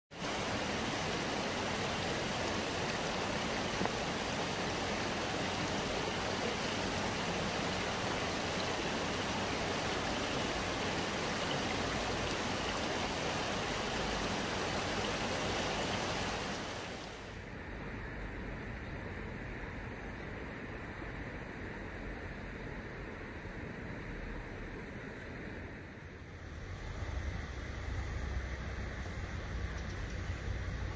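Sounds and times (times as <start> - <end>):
stream water rushing: 0.1 - 17.5.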